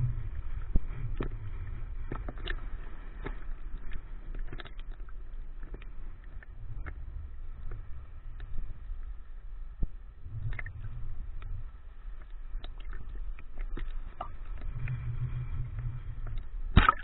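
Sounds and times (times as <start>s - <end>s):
muffled rumble of moving water: 0.0s - 17.0s
small splashes: 16.8s - 17.0s.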